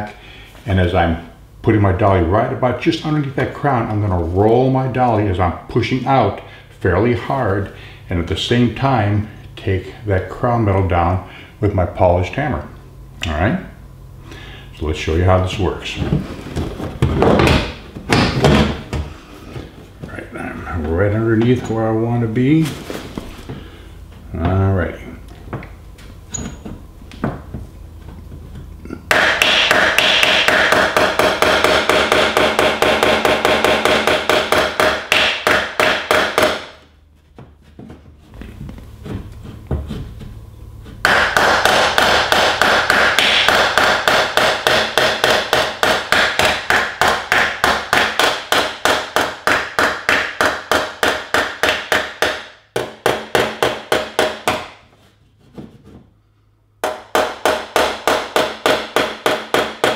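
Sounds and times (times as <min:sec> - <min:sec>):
hammer tapping on sheet metal: 0:29.1 - 0:36.8, 0:41.0 - 0:54.8, 0:56.8 - 0:59.9.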